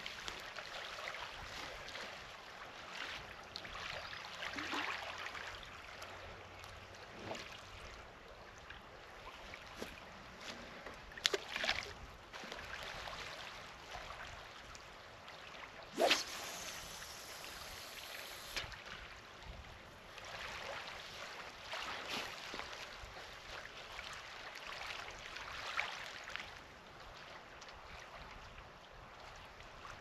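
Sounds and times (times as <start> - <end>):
small waves lapping on rocks: 0.0 - 26.6
fishing rod swishing: 15.9 - 18.8
fishing line running off reel: 16.0 - 18.7.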